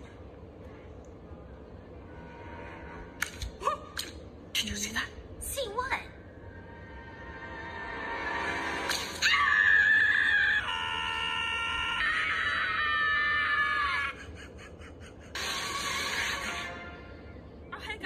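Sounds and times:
cartoon characters screaming: 9.1 - 14.2.

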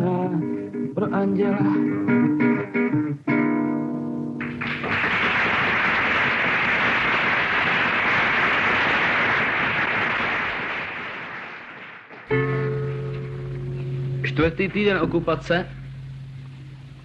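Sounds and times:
audience applause: 4.4 - 12.3
acoustic guitar chord ringing: 12.3 - 17.0.

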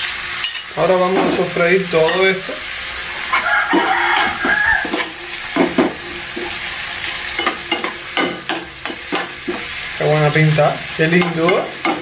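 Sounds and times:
vegetables sizzling in hot oil: 0.0 - 12.0
metal spoon scraping pan: 0.4 - 9.8.

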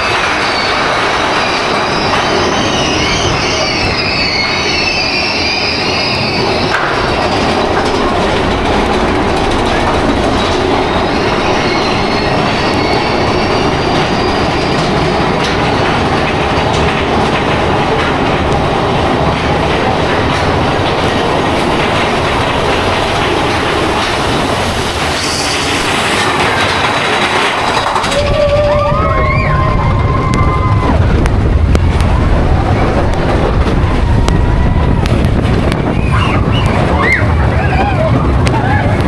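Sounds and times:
high wheel squeal: 0.0 - 15.4, 23.9 - 31.0, 35.8 - 39.0
roller coaster wheels rumbling: 0.0 - 39.0.

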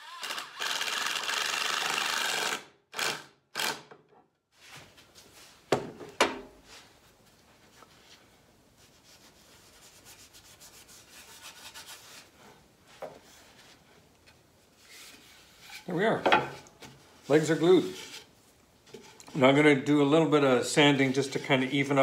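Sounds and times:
cordless drill driving screw: 0.0 - 4.0
hand rubbing sawdust on table: 20.8 - 22.0.

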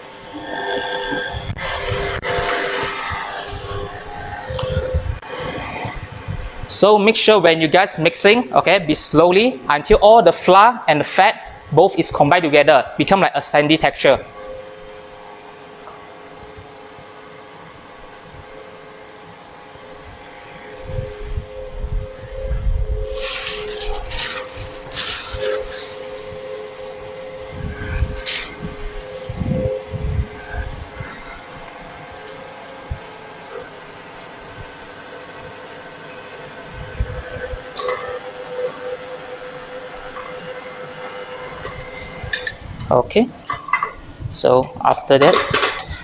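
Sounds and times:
stand mixer motor humming: 23.0 - 42.5.

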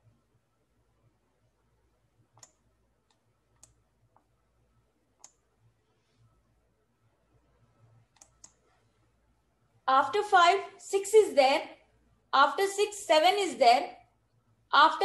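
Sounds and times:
faint computer mouse clicks: 2.3 - 4.3, 5.2 - 5.4, 8.1 - 8.8.

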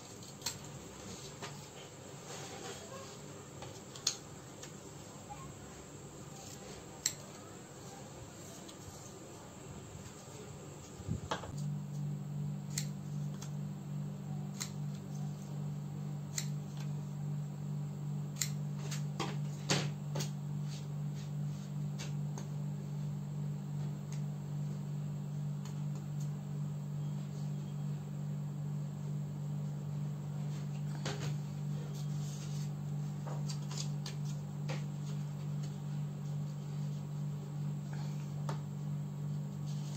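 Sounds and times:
steady low hum: 0.0 - 39.9
paper handling: 32.0 - 35.7.

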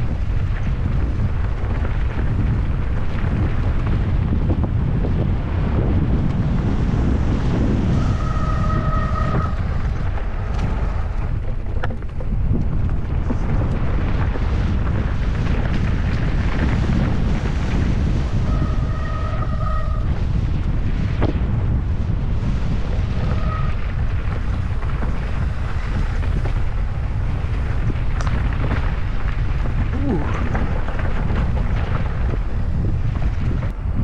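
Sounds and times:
wind buffeting microphone: 0.0 - 34.0.

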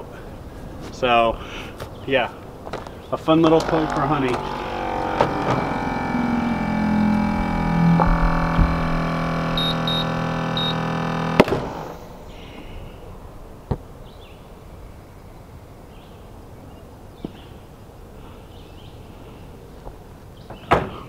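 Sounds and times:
ball launcher compressor humming: 3.3 - 13.9
short high beeps: 9.6 - 11.0.

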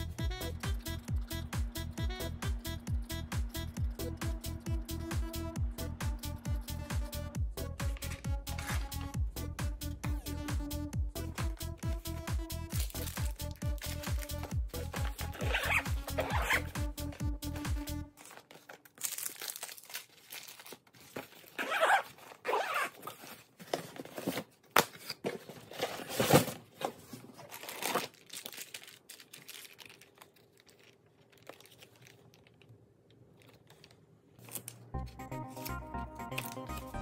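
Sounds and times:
packaging crinkling and rustling: 12.7 - 17.2, 18.0 - 34.9.

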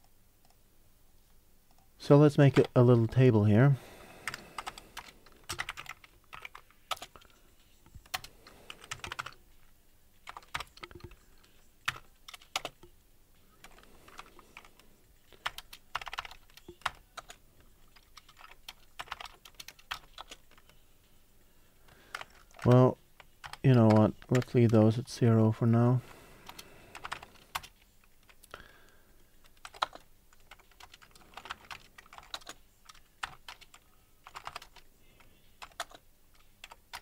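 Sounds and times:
typing on computer keyboard: 4.2 - 7.4, 8.0 - 9.4, 10.2 - 11.2, 11.8 - 12.9, 13.6 - 14.8, 15.4 - 20.8, 22.1 - 24.6, 26.4 - 28.4, 29.5 - 34.9, 35.6 - 37.0.

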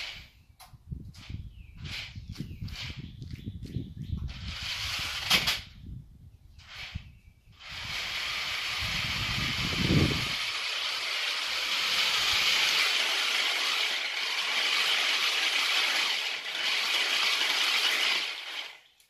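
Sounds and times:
toy truck motors whirring: 4.4 - 5.6, 6.6 - 19.0.

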